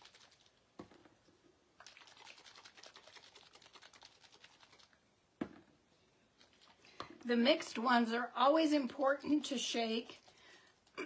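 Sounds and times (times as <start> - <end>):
plastic bottle rattling when shaken: 1.8 - 4.9.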